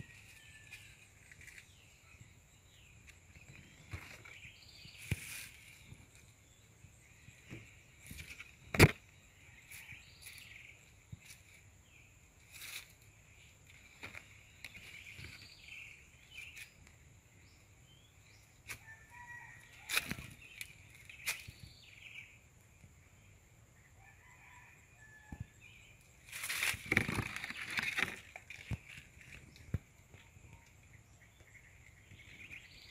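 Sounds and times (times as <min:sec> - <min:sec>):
leaves rustling against camera: 0:00.0 - 0:02.0, 0:03.1 - 0:06.4, 0:12.4 - 0:16.9, 0:18.6 - 0:21.9, 0:26.2 - 0:30.5.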